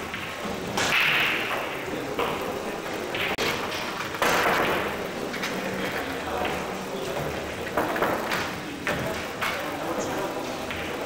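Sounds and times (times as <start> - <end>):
cue striking cue ball: 0.0 - 5.3
billiard balls knocking together: 0.0 - 5.6, 6.3 - 9.7.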